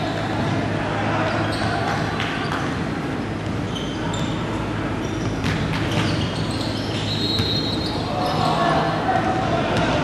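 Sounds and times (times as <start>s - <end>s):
low hum and hall noise: 0.0s - 10.0s
sneaker squeaks: 1.2s - 9.0s
basketball bouncing: 5.2s - 6.2s.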